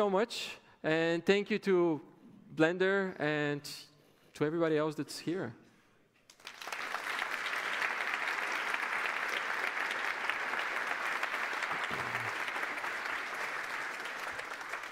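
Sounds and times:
audience applauding: 6.3s - 14.9s.

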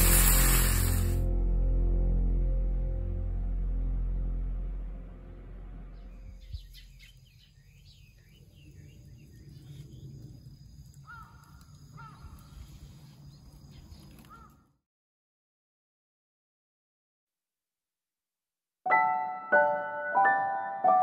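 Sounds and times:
background music: 0.0s - 6.4s, 18.9s - 21.0s
small birds chirping: 5.9s - 14.7s.

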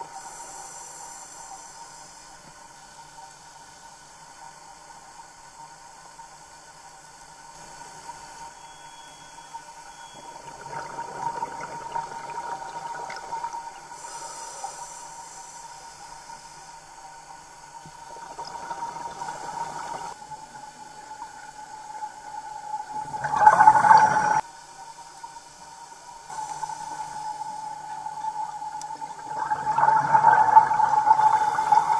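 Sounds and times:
diver's exhaled bubbles rushing: 23.0s - 24.4s, 29.2s - 31.9s.

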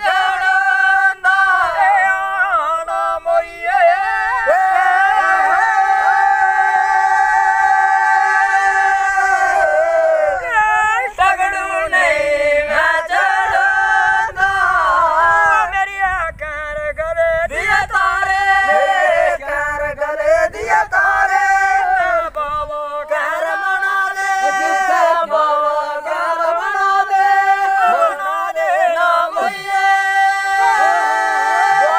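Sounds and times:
voices singing folk song: 0.0s - 31.9s.

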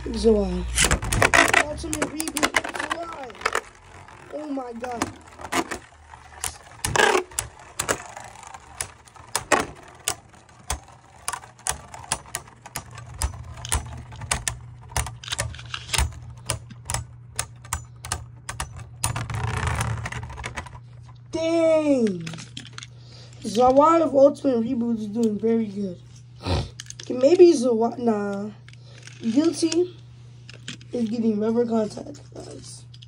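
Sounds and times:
tops rattling: 0.0s - 21.2s
low hum of spinning tops: 0.0s - 33.0s
spinning tops clacking together: 0.8s - 20.8s.

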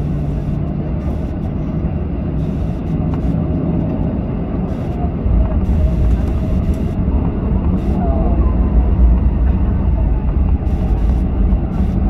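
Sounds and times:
faint whine: 0.0s - 12.0s
jet engine hum: 0.0s - 12.0s
low rolling rumble: 0.0s - 12.0s.

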